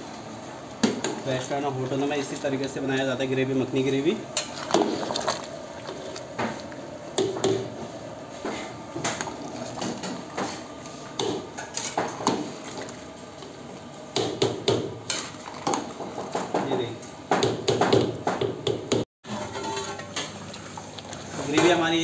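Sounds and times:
metal ladle clanking in pot: 19.3 - 20.4.

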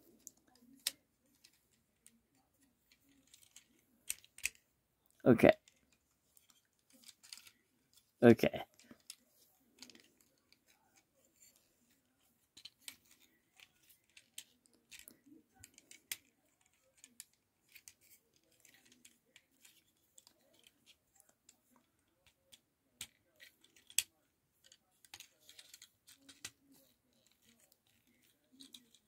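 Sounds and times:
plastic parts clicking: 0.1 - 29.0.

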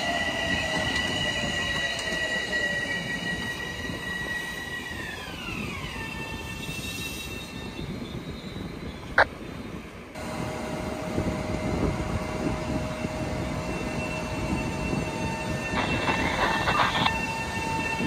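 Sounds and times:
electric train hum: 0.0 - 18.0
wheel and rail rumble: 0.0 - 18.0.

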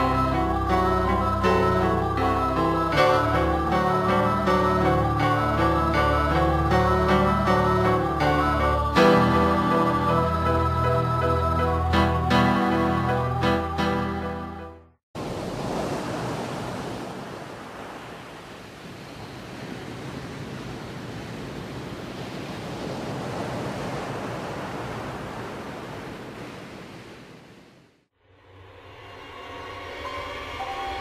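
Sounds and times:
ocean surf breaking on rocks: 15.2 - 27.7.

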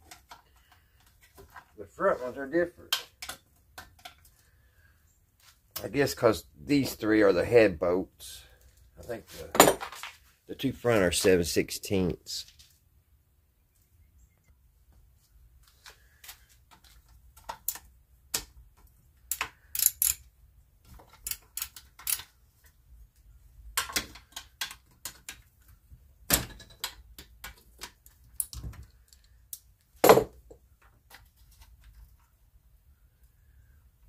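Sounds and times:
wrench clicking on metal: 19.3 - 20.2, 21.2 - 22.3.

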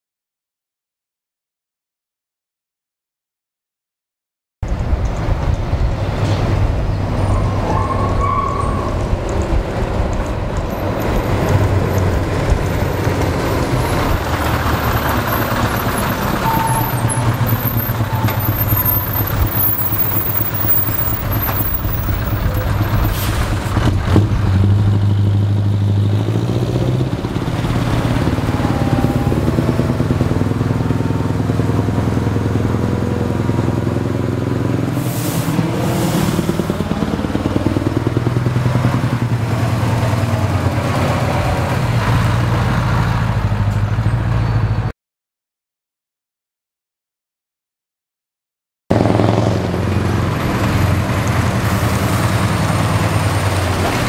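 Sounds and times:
truck diesel engine running: 4.7 - 44.9, 48.9 - 54.0.

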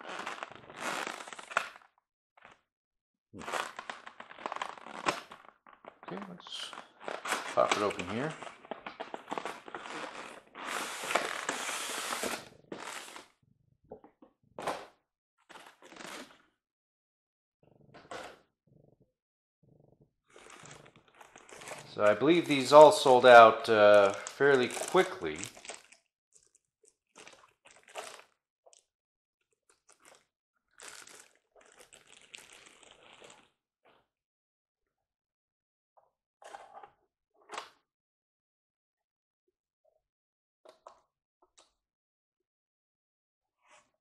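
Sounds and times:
plastic bag crinkling: 0.0 - 1.6, 3.4 - 5.8, 6.5 - 13.2, 20.3 - 26.6, 27.2 - 28.2, 30.8 - 33.4.

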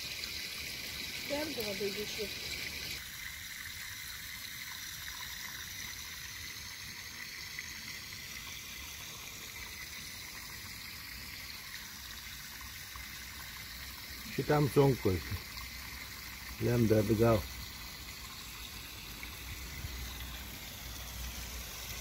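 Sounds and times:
trickle of running water: 0.0 - 22.0.

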